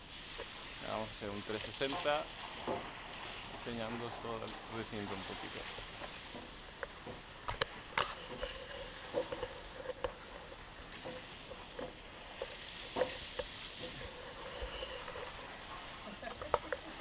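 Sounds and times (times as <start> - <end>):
light clicks and knocks: 5.6 - 15.5.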